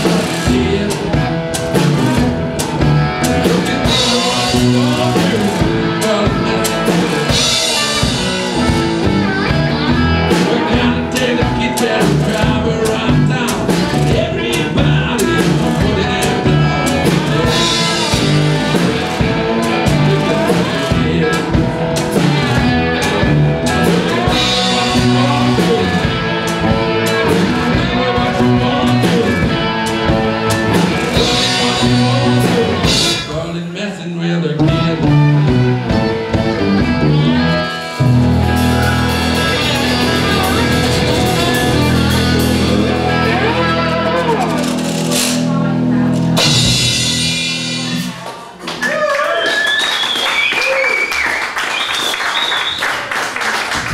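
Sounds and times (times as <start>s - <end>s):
drum kit beat: 0.0s - 33.5s, 34.6s - 49.0s
slide guitar notes: 34.6s - 48.2s.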